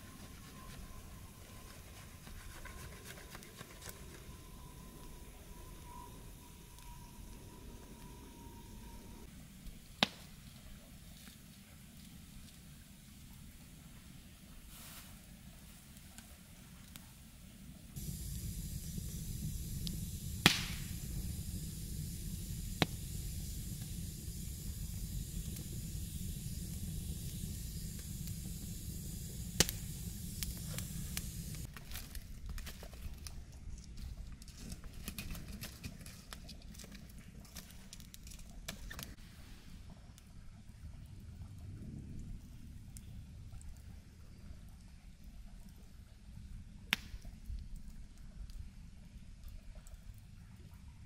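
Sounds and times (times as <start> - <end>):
low rumble with hiss: 0.0 - 31.7, 36.2 - 51.0
sharp snaps: 19.8 - 20.9, 46.9 - 47.4
light crackling clicks: 26.6 - 39.2, 46.9 - 48.6.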